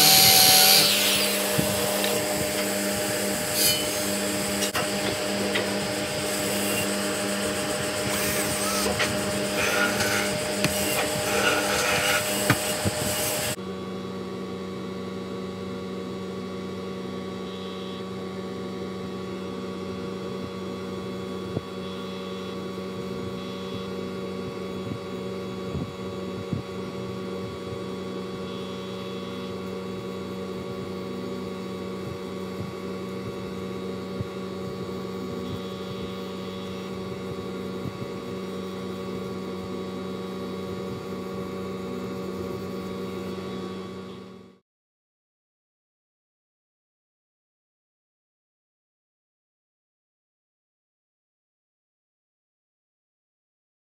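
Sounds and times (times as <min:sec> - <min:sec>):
cordless drill running: 0:00.0 - 0:03.5
steady electrical hum: 0:00.0 - 0:44.6.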